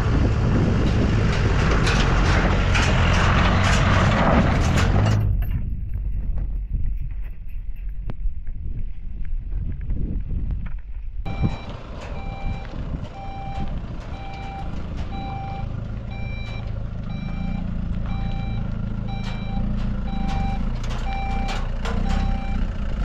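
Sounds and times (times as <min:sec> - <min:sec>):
truck engine hum: 0:00.0 - 0:06.2, 0:11.2 - 0:23.0
reversing alarm beeping: 0:11.3 - 0:22.8.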